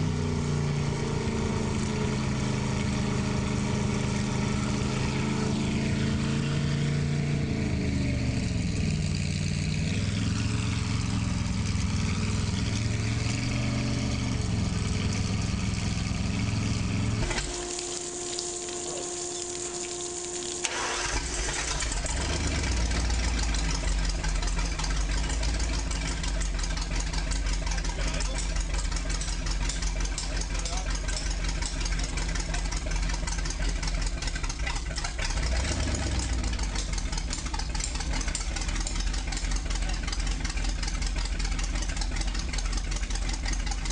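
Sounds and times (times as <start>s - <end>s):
boat engine revving: 0.0s - 43.9s
engine starting and idling: 14.4s - 43.9s.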